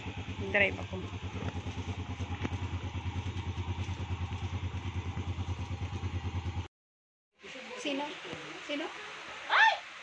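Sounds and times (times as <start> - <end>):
scooter engine idling: 0.0 - 6.7.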